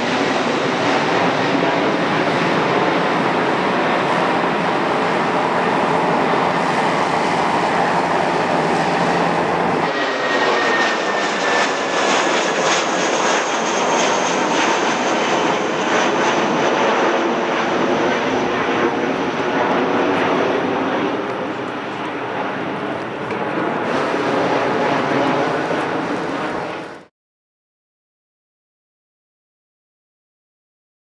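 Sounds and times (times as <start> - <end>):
jet engine roar: 0.0 - 27.1.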